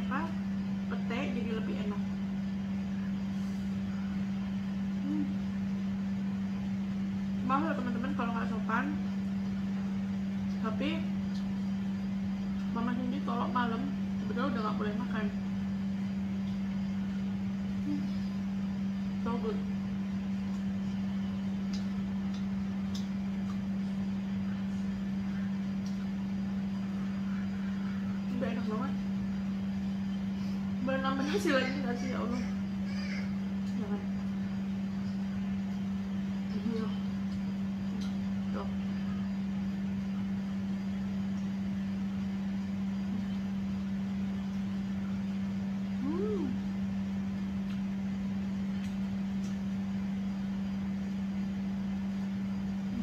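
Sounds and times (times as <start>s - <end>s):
faint rumble: 0.0s - 53.0s
steady low hum: 0.0s - 53.0s
person chewing and lip smacking: 21.6s - 23.8s, 47.6s - 47.9s, 48.7s - 49.6s.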